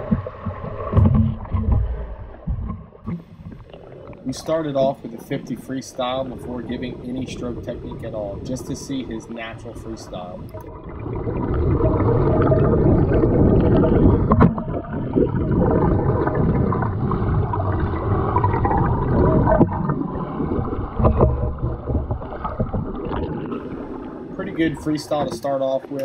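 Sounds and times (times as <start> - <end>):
underwater knocks: 0.0 - 4.2, 10.4 - 24.0, 25.1 - 25.6
muffled underwater swimming strokes: 0.0 - 26.0
water rushing and bubbling: 0.0 - 26.0.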